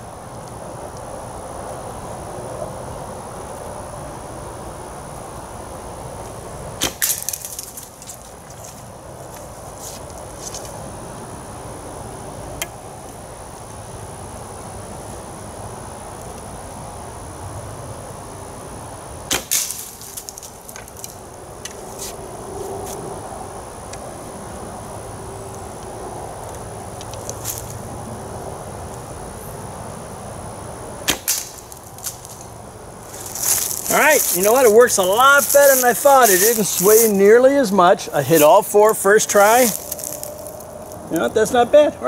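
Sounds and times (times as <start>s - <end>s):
arrow breaking clay target: 6.8s - 7.8s, 19.3s - 20.3s, 31.0s - 32.2s.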